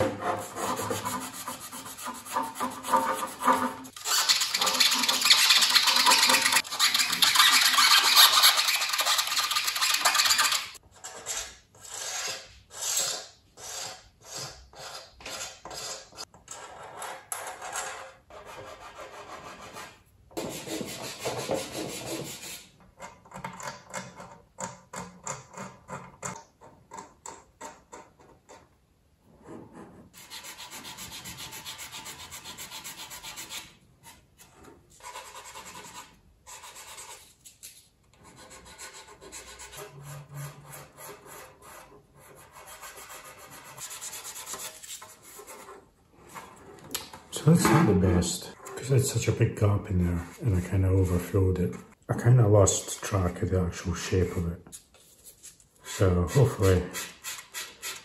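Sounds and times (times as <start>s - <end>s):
sanding plastic: 0.0s - 10.8s, 30.1s - 46.4s, 55.0s - 58.0s.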